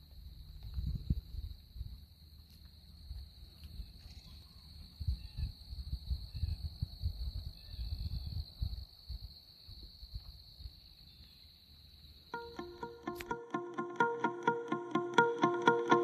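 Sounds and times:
wind rumbling on microphone: 0:00.6 - 0:02.0, 0:05.0 - 0:10.8.

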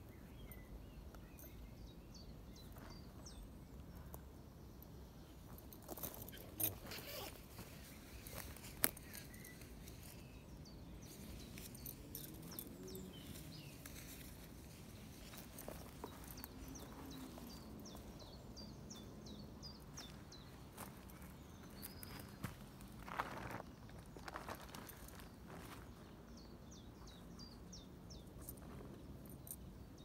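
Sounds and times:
songbird singing: 0:00.0 - 0:30.0
footsteps crunching on twigs: 0:05.8 - 0:10.3.

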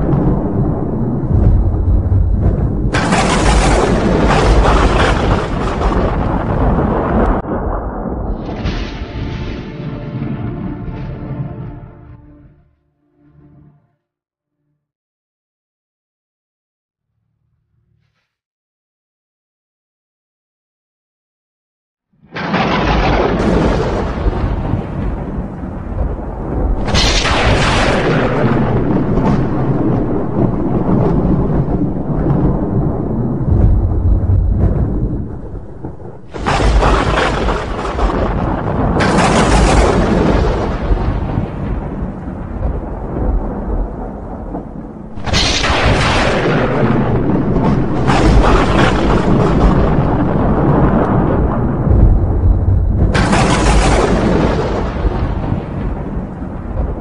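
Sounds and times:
wind blowing hard: 0:00.0 - 0:09.2, 0:23.1 - 0:57.0
crackling peal of thunder: 0:00.0 - 0:11.9, 0:22.2 - 0:57.0
thunder rumbling: 0:00.0 - 0:12.2, 0:22.3 - 0:57.0.

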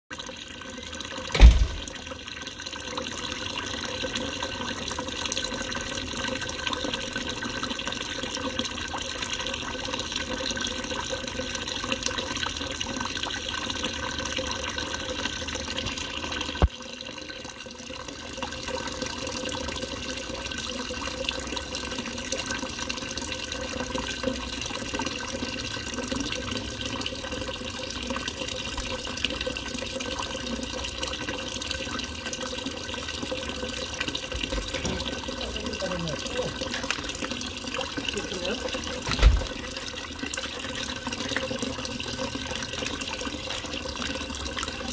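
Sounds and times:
fountain water pouring into bowl: 0:00.1 - 0:44.9
sharp click: 0:01.4 - 0:01.9
low thump: 0:01.4 - 0:02.0, 0:39.1 - 0:39.6.

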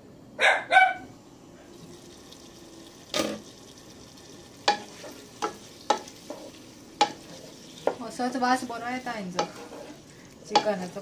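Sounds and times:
chicken sizzling in a pan: 0:01.8 - 0:11.0
wooden spatula knocking on pan: 0:04.6 - 0:08.0, 0:09.3 - 0:09.9, 0:10.5 - 0:10.9.

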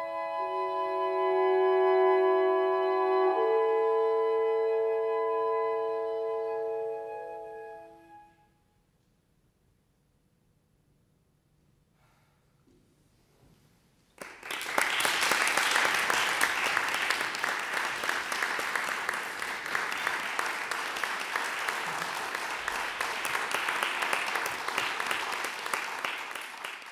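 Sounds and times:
audience applause: 0:14.2 - 0:26.9.

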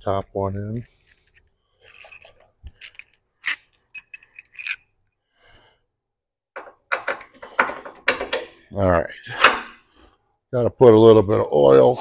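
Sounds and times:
metal tools clinking on steel: 0:01.8 - 0:04.9.

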